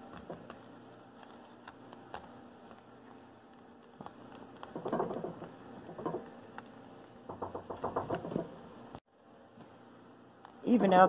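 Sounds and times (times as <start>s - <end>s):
hands rubbing clay on a mat: 0.0s - 6.8s.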